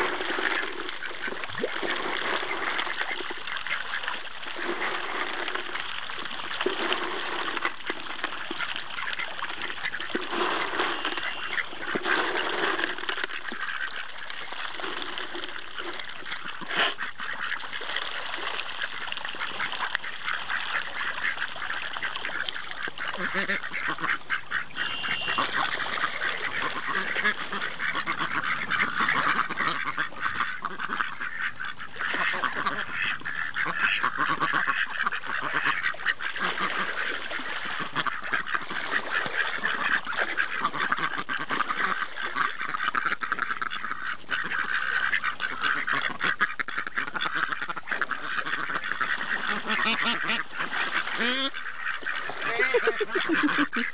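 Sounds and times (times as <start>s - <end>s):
ducks quacking: 0.0s - 53.9s
water splashing: 0.0s - 53.9s.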